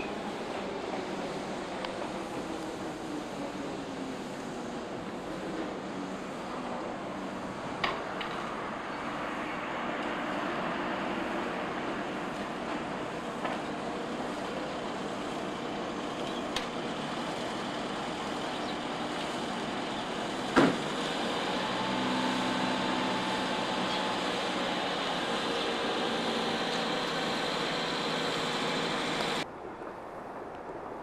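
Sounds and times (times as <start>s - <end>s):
station platform ambience: 0.0s - 29.9s.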